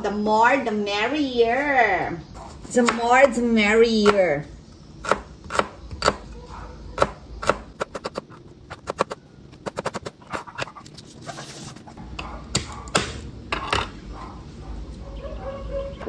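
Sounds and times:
knife chopping on plastic board: 5.0s - 6.2s.

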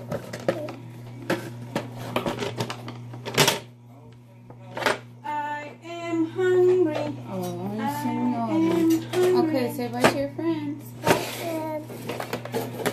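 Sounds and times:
child's voice: 10.9s - 12.1s.

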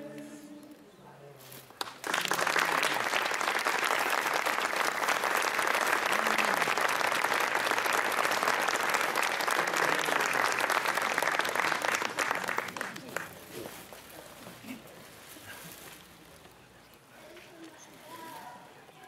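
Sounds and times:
audience applauding: 1.8s - 13.6s.

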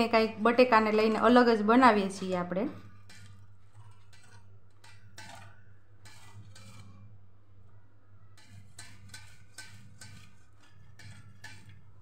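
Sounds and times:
potatoes rasping on a grater: 5.2s - 7.0s, 8.4s - 12.0s.

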